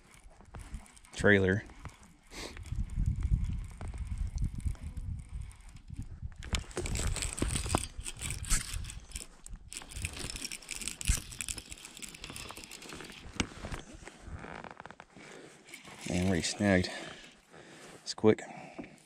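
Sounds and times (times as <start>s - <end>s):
fishing tackle clicking and rustling: 0.0s - 19.0s
low rumble on microphone: 2.6s - 9.7s.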